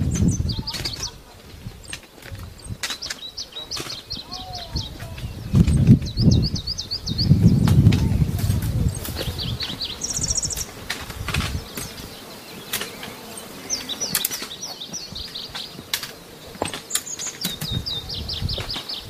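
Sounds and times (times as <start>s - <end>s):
small birds singing: 0.0s - 19.0s
sharp clicks: 13.8s - 14.7s.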